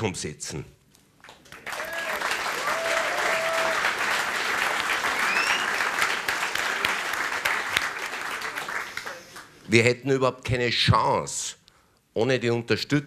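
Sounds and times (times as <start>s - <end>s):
audience applauding: 1.2s - 9.6s.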